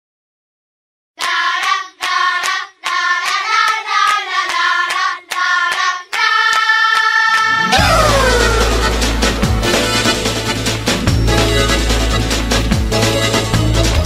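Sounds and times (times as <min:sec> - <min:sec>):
hand claps beat: 0:01.2 - 0:09.7.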